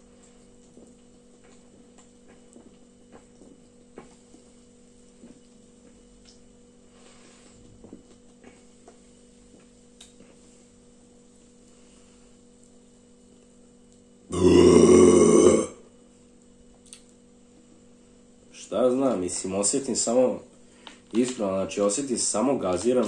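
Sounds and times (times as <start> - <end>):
loud burp: 14.3 - 15.8
man gulping drink: 14.3 - 15.8.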